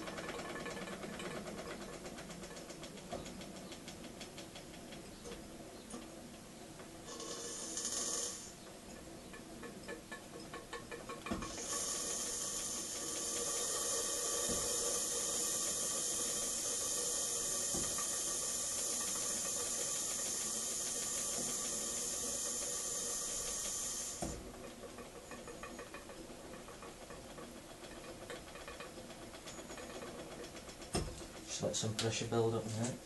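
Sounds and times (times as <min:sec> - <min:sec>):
steam hissing from boiler: 0:06.8 - 0:33.0.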